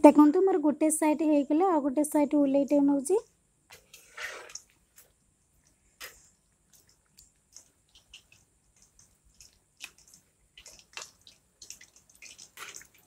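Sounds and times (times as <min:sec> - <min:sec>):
food deep-frying in oil: 0:03.7 - 0:13.0.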